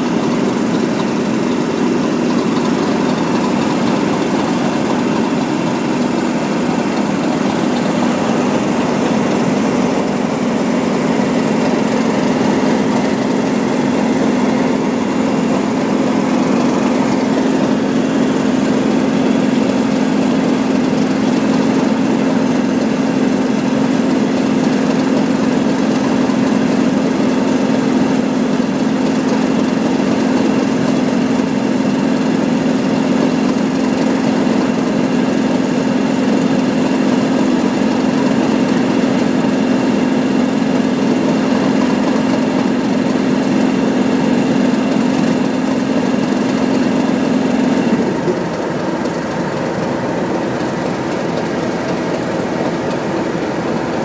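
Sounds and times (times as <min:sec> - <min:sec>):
diesel locomotive engines idling: 0:00.0 - 0:54.0.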